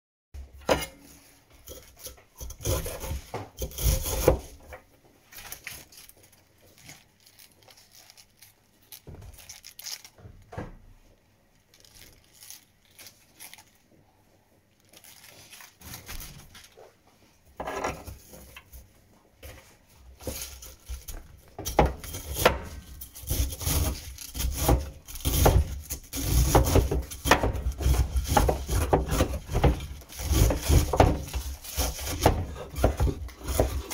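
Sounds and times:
cleaver chopping on wooden board: 0:21.6 - 0:33.9.

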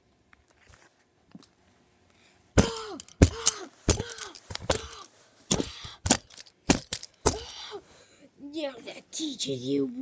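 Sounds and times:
toy hammer striking spinning tops: 0:02.6 - 0:07.5.

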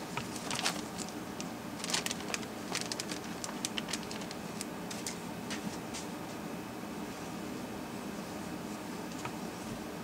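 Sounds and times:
steady low hum: 0:00.0 - 0:10.0
plastic connectors clicking and crinkling: 0:01.8 - 0:05.2.

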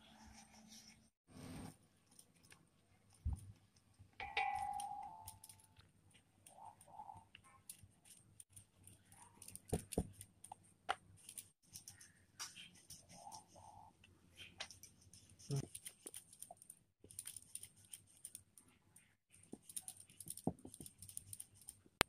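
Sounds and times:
short metallic ring: 0:04.2 - 0:05.6.

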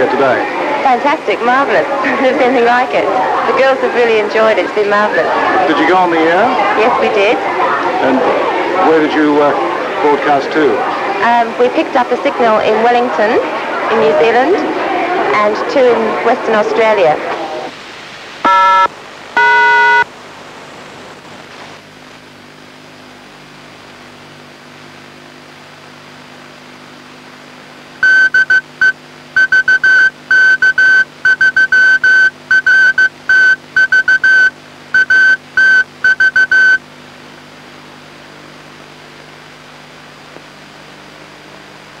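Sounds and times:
morse code tone: 0:18.4 - 0:20.1, 0:28.0 - 0:36.8.

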